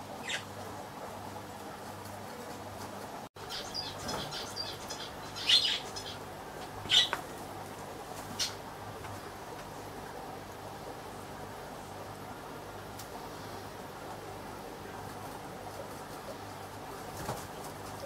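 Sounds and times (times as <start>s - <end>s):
steady low hum: 0.0s - 18.0s
small bird chirping: 0.2s - 0.5s, 3.4s - 6.2s, 6.9s - 7.2s, 8.4s - 8.6s.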